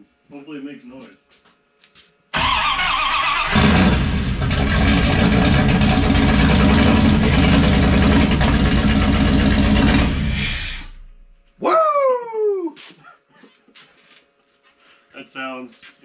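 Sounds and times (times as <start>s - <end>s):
starter motor cranking: 2.4s - 11.0s
loud engine running: 3.4s - 11.2s.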